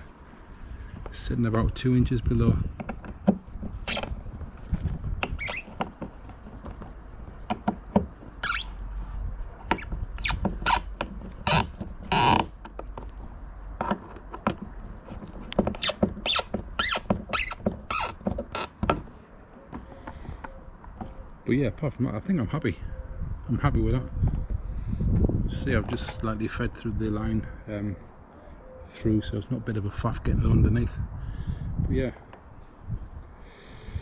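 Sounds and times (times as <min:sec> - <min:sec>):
screwdriver clicks and squeaks: 0:05.2 - 0:05.9, 0:08.4 - 0:08.8.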